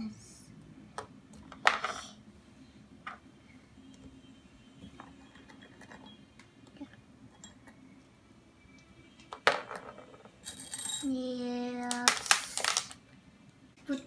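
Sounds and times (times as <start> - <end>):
sharp clatter with ring: 9.5 - 11.2
candy toppings clicking and tapping: 11.8 - 13.1.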